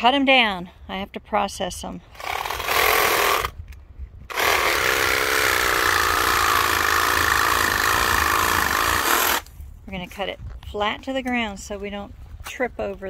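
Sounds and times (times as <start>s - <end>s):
cordless power saw cutting stalks: 2.2s - 3.6s, 4.3s - 9.6s.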